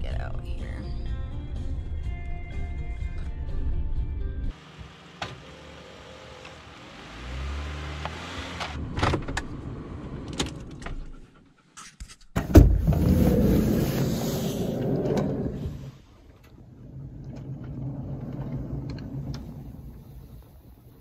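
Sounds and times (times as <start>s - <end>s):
road noise inside cab: 0.0s - 11.1s, 12.4s - 21.0s
van engine hum: 1.0s - 11.6s, 12.6s - 21.0s
loud thump: 12.4s - 13.2s.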